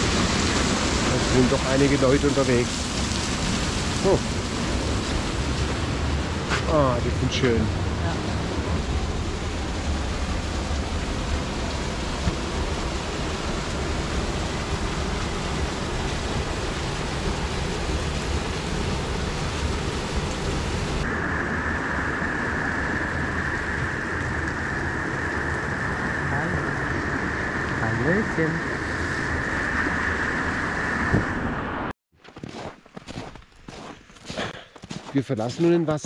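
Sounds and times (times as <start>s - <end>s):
bright hiss of water: 0.0s - 5.8s
waterfall roaring: 0.0s - 31.8s.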